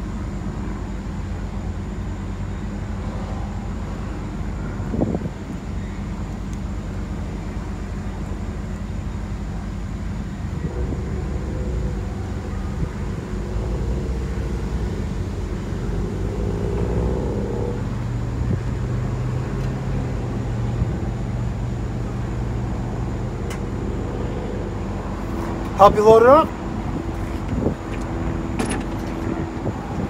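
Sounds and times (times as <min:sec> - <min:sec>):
engine humming: 0:00.0 - 0:30.0.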